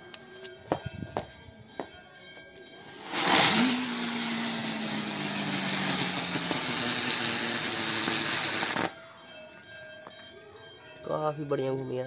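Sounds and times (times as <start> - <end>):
firecracker hissing: 2.8 - 9.0.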